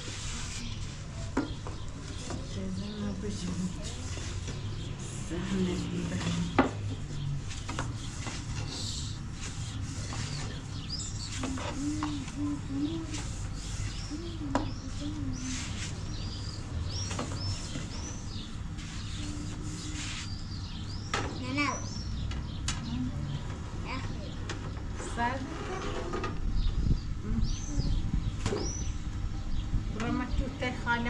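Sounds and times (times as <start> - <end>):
steady low hum: 0.0 - 31.0
birds chirping: 0.4 - 31.0
dove cooing: 9.8 - 16.3.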